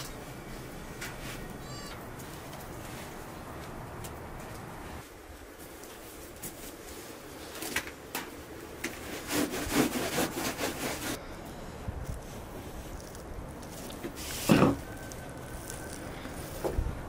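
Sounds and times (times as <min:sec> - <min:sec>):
hand rubbing rough burlap: 0:08.9 - 0:11.2, 0:12.0 - 0:17.0.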